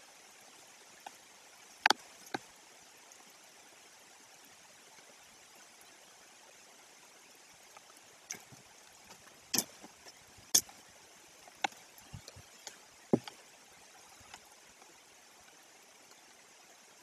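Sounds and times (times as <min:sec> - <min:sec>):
faint hiss: 0:00.0 - 0:17.0
knocks and cracks of sticks: 0:08.3 - 0:10.8.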